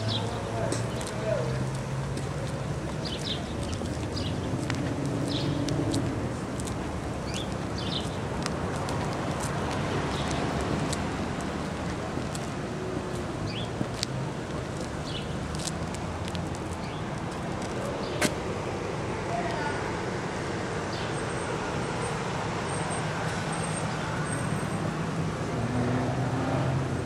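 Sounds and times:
low traffic noise: 0.0s - 27.0s
small birds chirping: 2.9s - 4.6s, 5.2s - 5.7s, 7.2s - 8.3s, 10.1s - 10.5s, 13.4s - 13.8s, 15.0s - 15.4s.

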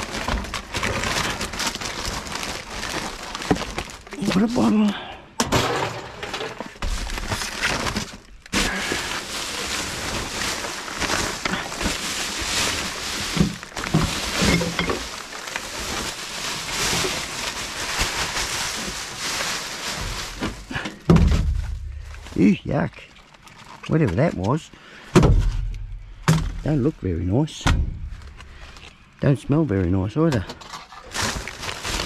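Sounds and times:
rummaging through rubbish: 0.0s - 32.0s
glass bottles clinking: 14.1s - 15.3s.

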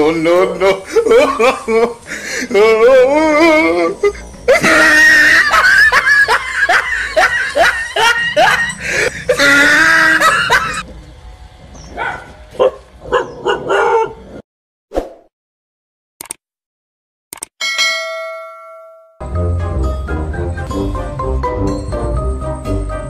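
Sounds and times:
dogs barking and yelping: 11.8s - 14.4s.

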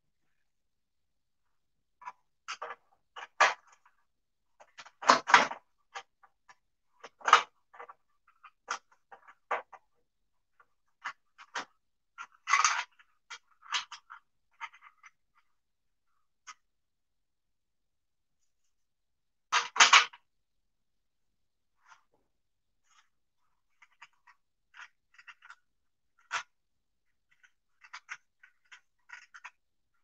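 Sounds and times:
metal parts clicking and knocking: 27.3s - 29.6s.

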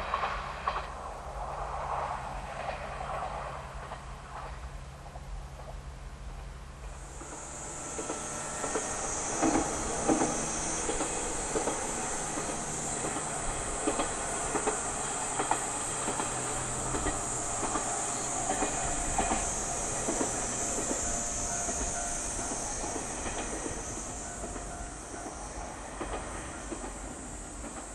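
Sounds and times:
steady high hiss: 4.8s - 27.9s
low engine drone: 6.8s - 25.8s
train wheels clattering over rail joints: 6.8s - 27.9s.

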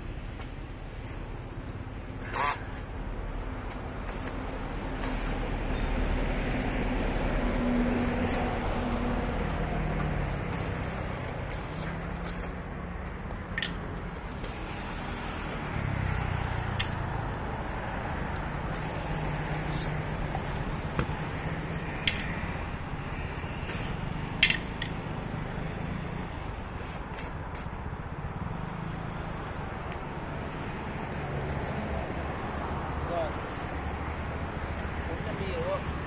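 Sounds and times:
hand tools clicking and tapping: 10.0s - 14.7s, 16.8s - 17.0s, 22.0s - 22.4s, 24.4s - 25.0s.

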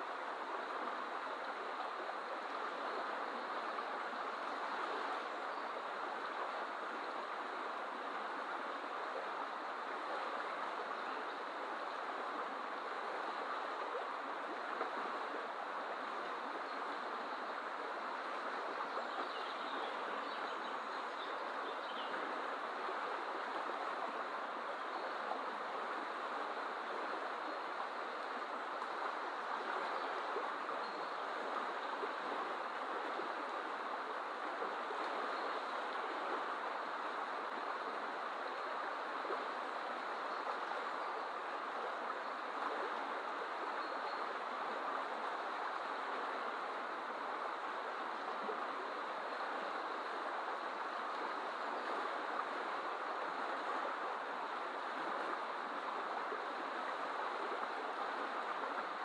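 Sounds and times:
river rushing over white water: 0.0s - 59.0s.

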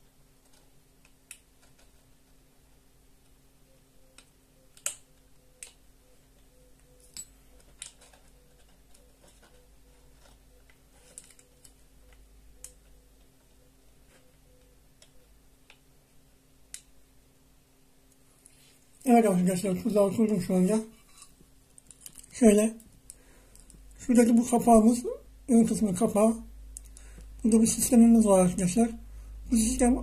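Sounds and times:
faint steady hum: 0.0s - 30.0s
clicks and taps of thin wire: 0.4s - 2.0s, 4.2s - 5.8s, 21.3s - 24.0s.

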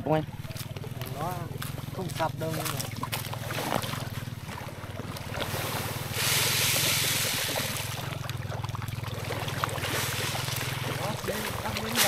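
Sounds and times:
steady low hum: 0.0s - 12.0s
small splashes: 0.3s - 12.0s
fish feed hissing on water: 5.5s - 8.2s, 9.4s - 11.0s.

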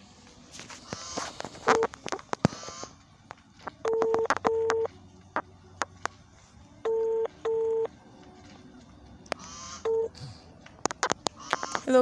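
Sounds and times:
phone ringback tone: 3.8s - 4.9s, 6.8s - 7.9s, 9.6s - 10.1s.

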